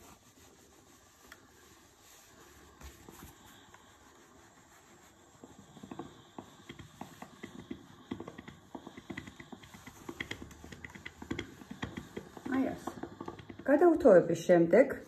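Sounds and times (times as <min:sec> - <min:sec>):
iron knocking on ironing board: 0:05.6 - 0:14.0.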